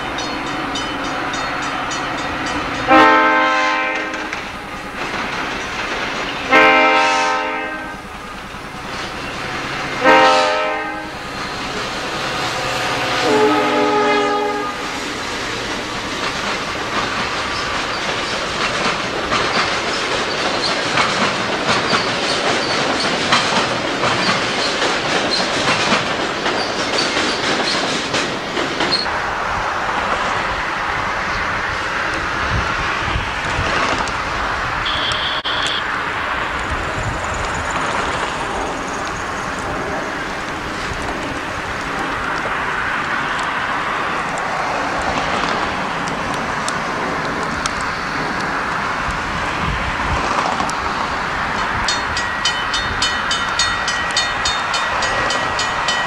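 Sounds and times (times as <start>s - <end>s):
train wheels clickety-clack: 0.0s - 29.1s, 29.8s - 56.0s
train horn blasts: 2.8s - 4.4s, 6.4s - 8.0s, 10.0s - 15.0s, 34.8s - 36.0s.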